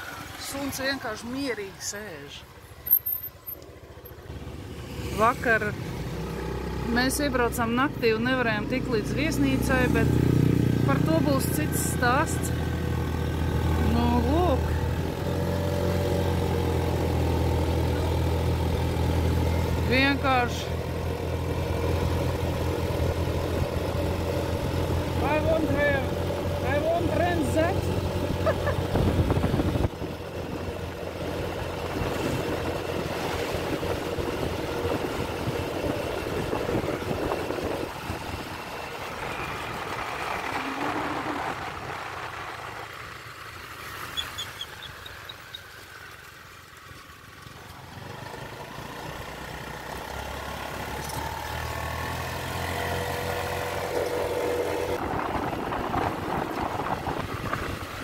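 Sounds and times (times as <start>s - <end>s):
road noise: 0.0s - 58.0s
vehicle engine running: 0.0s - 58.0s.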